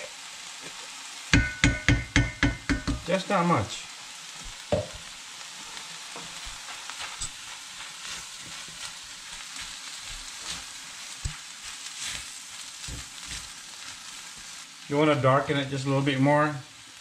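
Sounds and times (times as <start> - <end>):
food sizzling in a pan: 0.0 - 17.0
utensils scraping and knocking pan: 6.1 - 13.5.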